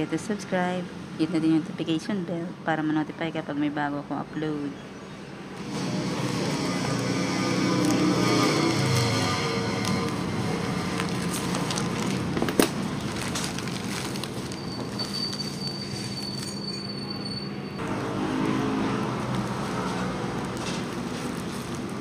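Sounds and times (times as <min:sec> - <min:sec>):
plastic packaging crinkling: 0:06.2 - 0:16.6, 0:19.3 - 0:22.0.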